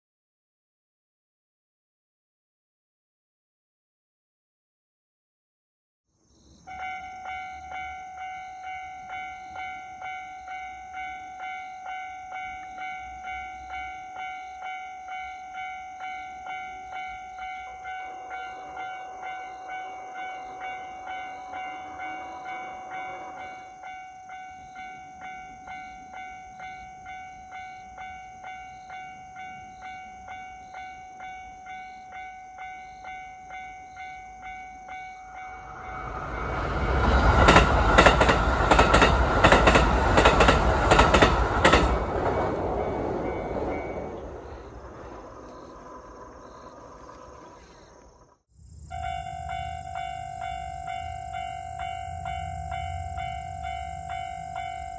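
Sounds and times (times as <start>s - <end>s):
electric train passing: 6.5s - 54.9s
level-crossing warning bell: 6.6s - 47.6s, 48.8s - 54.9s
train wheels clacking on rail joints: 36.0s - 47.6s.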